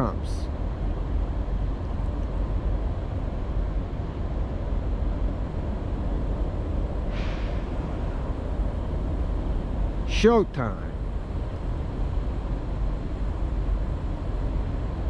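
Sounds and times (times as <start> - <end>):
distant locomotive rumble: 0.0 - 15.0
short hiss: 7.1 - 7.8.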